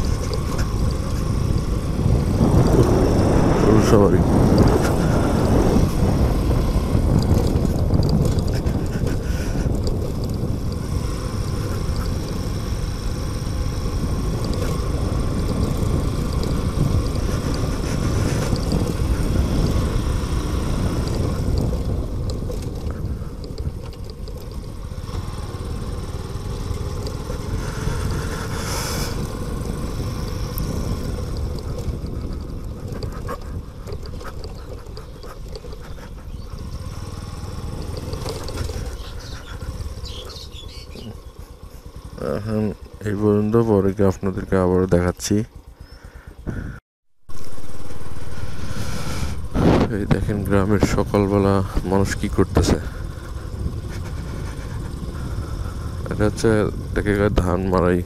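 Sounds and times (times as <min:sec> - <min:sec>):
motorcycle engine: 0:00.0 - 0:58.0
rumble of wind and road: 0:00.0 - 0:58.0.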